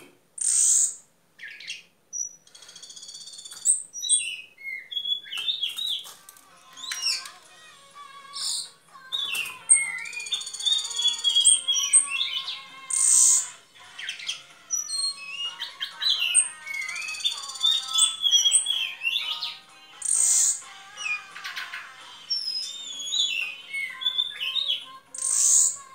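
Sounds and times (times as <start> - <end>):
buzzy bird trills: 5.0 - 25.9
thrush whistled song: 8.4 - 13.5, 14.1 - 21.2, 22.2 - 25.8.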